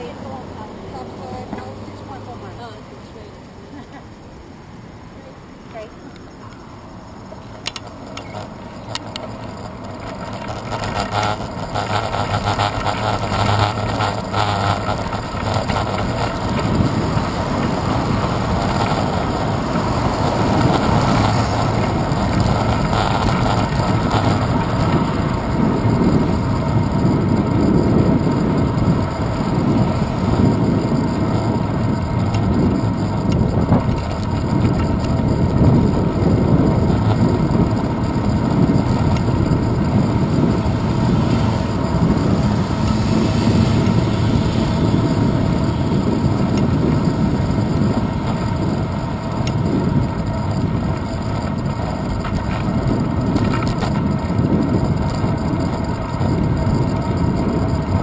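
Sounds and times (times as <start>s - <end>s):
wind and road rumble: 0.0s - 58.0s.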